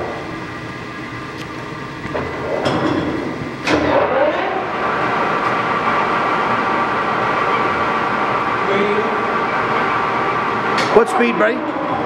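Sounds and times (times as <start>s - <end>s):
lathe gear whine: 0.0s - 12.0s
lathe humming: 3.3s - 12.0s.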